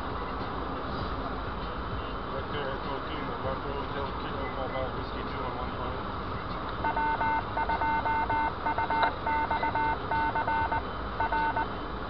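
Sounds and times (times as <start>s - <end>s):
car road noise: 0.0s - 12.0s
touch-tone beeps: 6.8s - 11.7s.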